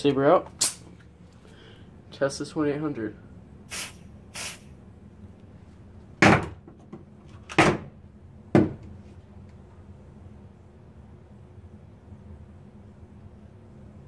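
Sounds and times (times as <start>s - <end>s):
aerosol spray bursts: 3.7s - 4.7s.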